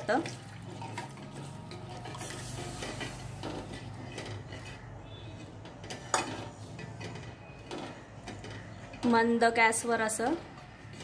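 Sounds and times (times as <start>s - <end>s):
spoon scraping and clinking pot: 0.0s - 8.0s.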